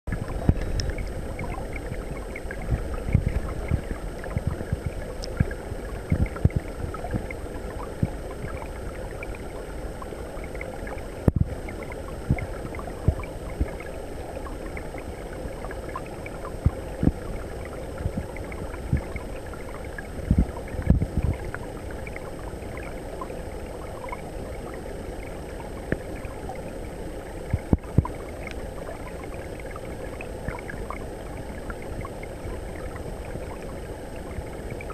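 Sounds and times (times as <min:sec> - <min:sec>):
underwater stream rush: 0:00.1 - 0:34.9.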